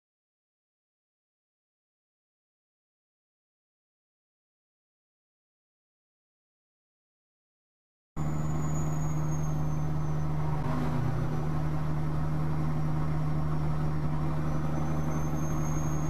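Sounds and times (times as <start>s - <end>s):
road noise: 8.2s - 16.0s
truck engine drone: 8.2s - 16.0s.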